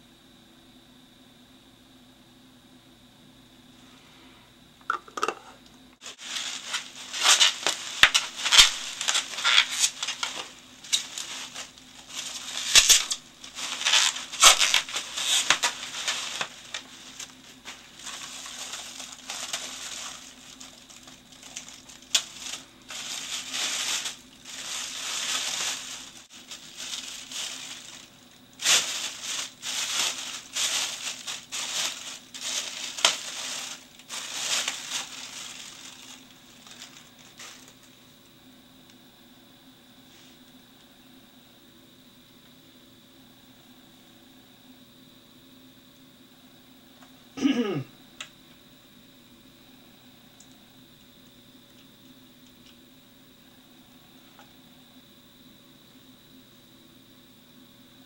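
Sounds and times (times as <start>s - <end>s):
bubble wrap crackles: 6.0s - 38.0s
plastic bag crinkling and rustling: 6.0s - 38.0s.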